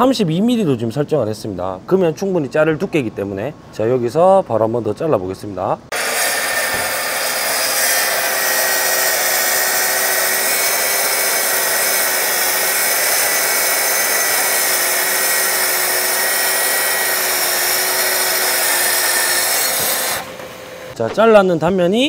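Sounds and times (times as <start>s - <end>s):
plunge saw cutting board: 5.9s - 21.2s.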